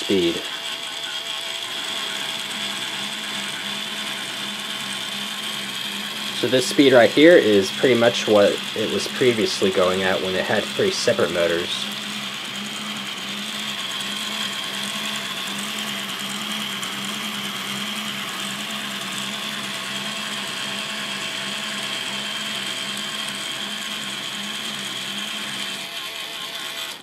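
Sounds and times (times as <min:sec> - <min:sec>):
electric motors whirring: 0:00.0 - 0:27.0
plastic gears throbbing: 0:00.0 - 0:27.0.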